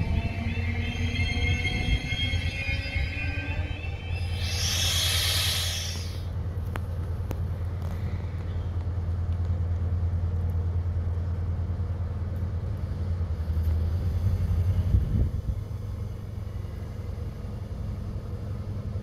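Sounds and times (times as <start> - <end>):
train diesel engine idling: 0.0 - 19.0
high hiss: 4.1 - 6.3.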